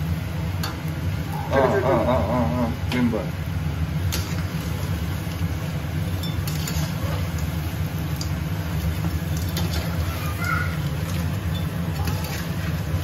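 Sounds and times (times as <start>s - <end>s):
steady low hum: 0.0s - 13.0s
metal spatula scraping a wok: 6.4s - 7.2s.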